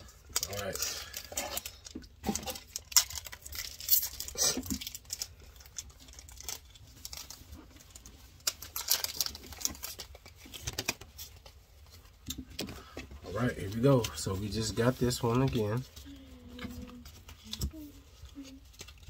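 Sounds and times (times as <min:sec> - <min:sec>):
foil wrapper crinkling and tearing: 0:00.0 - 0:12.0, 0:12.6 - 0:19.0.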